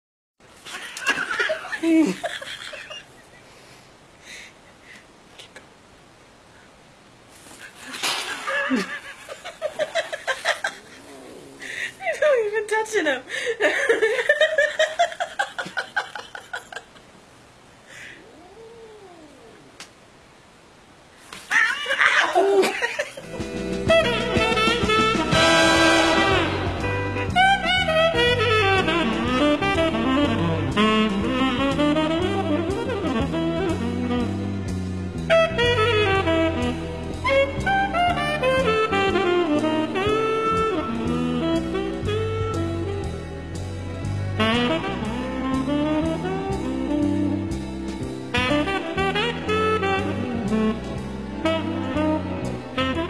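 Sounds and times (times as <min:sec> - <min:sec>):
jazz rhythm section: 0:23.2 - 0:53.0
jazz saxophone melody: 0:23.2 - 0:53.0.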